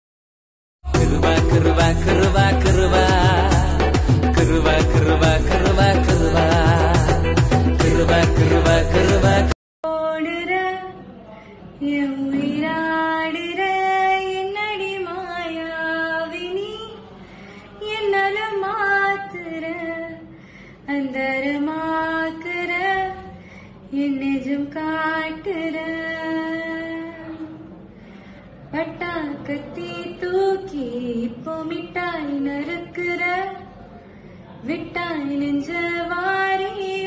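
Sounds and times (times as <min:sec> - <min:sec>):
loud music: 0:00.9 - 0:09.6.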